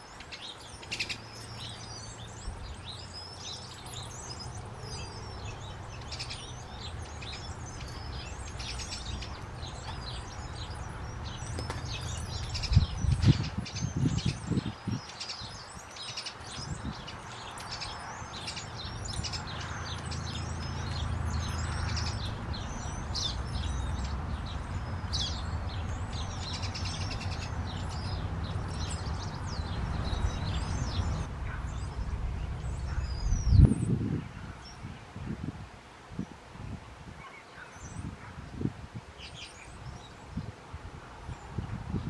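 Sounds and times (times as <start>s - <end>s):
songbirds chirping: 0.0s - 42.0s
steady low rumble: 20.3s - 34.6s.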